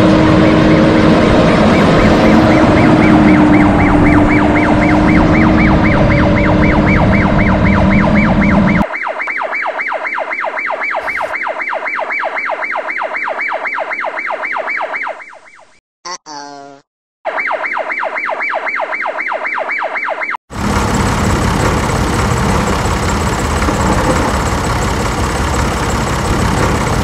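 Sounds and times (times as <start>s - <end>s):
toy siren warbling: 1.6s - 9.7s, 10.8s - 16.6s.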